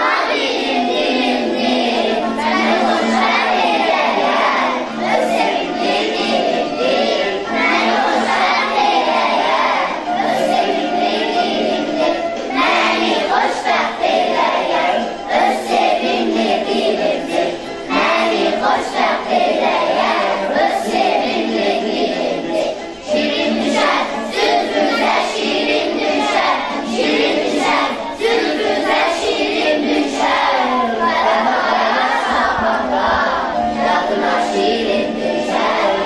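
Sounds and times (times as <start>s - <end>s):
children's choir singing: 0.0s - 36.0s.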